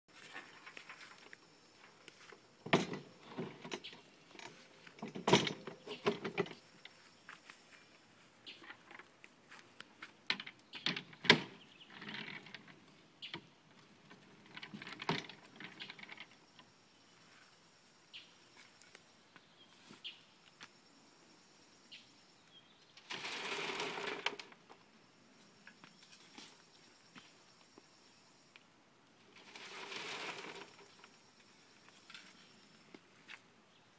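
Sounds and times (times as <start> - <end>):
sharp knocks and clatters: 2.6 - 6.7
compost dumped onto sifter: 23.1 - 24.5, 29.4 - 31.1.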